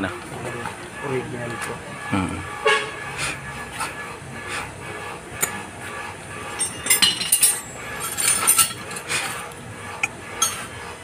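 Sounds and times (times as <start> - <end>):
hand tools and metal parts clinking: 6.5 - 9.3, 10.4 - 10.7.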